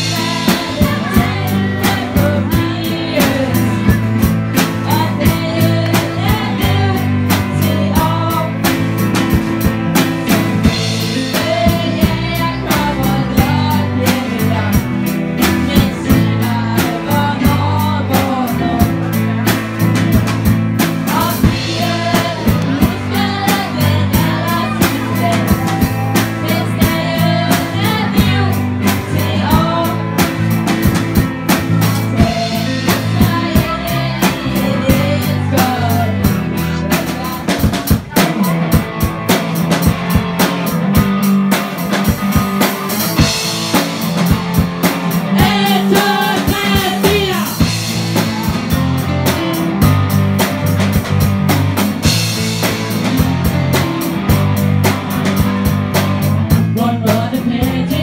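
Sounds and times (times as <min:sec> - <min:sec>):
girls singing: 0:00.0 - 0:08.7, 0:10.8 - 0:14.8, 0:15.4 - 0:19.0, 0:21.0 - 0:30.6, 0:32.0 - 0:37.6, 0:45.1 - 0:48.3, 0:56.7 - 0:58.0
drum kit beat: 0:00.0 - 0:58.0
guitars: 0:00.0 - 0:58.0
keyboards: 0:00.0 - 0:58.0.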